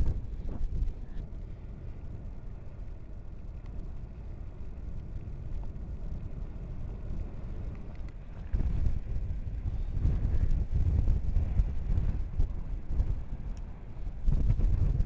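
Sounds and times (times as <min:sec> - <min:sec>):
lava lake rumbling: 0:04.0 - 0:15.0.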